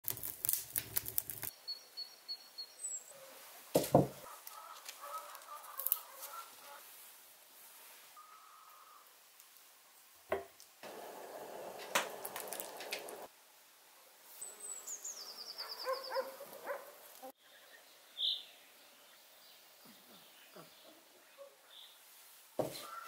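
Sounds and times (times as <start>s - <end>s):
knock: 3.8s - 4.2s.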